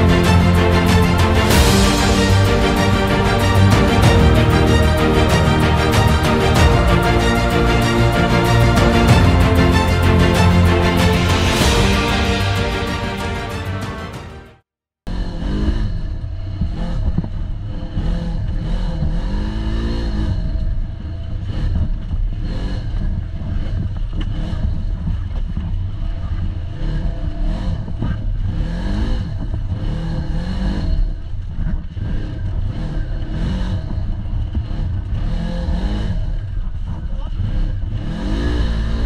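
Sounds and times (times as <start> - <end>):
off-road vehicle engine revving: 15.1 - 39.0.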